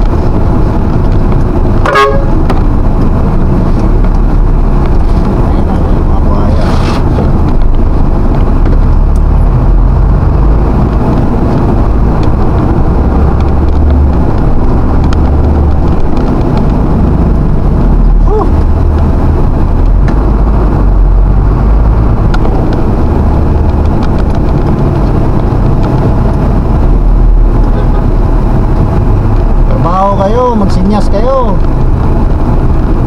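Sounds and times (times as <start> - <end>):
vehicle engine and road rumble: 0.0 - 33.0.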